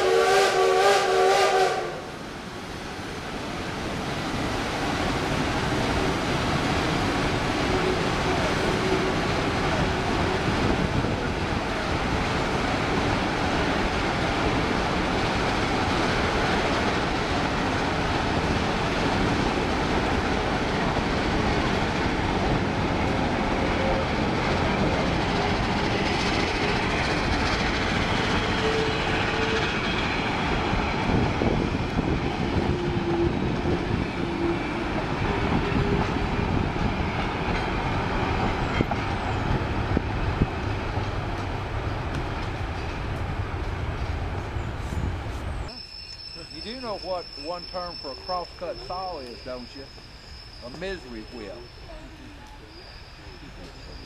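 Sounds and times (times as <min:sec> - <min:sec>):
train wheels rumbling on track: 0:00.0 - 0:54.0
wheels squealing: 0:44.0 - 0:54.0.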